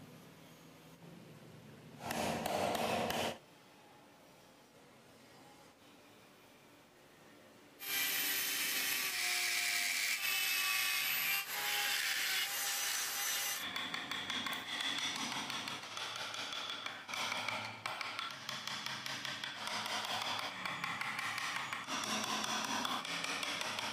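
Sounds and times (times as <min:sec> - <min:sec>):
chisel scraping wood: 0:13.4 - 0:23.9.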